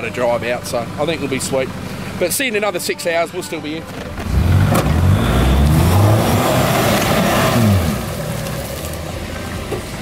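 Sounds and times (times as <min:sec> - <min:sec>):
engine revving hard: 0:04.3 - 0:08.1.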